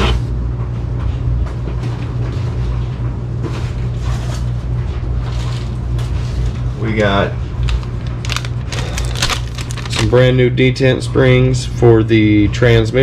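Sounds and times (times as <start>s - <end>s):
machine droning hum: 0.0s - 13.0s
packaging rustling and knocks: 7.6s - 10.2s.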